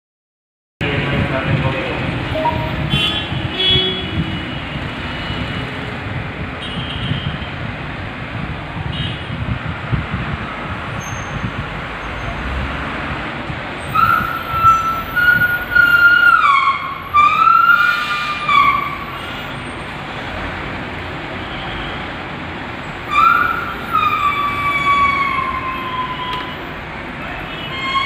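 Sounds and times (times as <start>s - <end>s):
siren-like wailing tone: 2.3s - 2.9s, 14.0s - 19.0s, 23.1s - 26.7s.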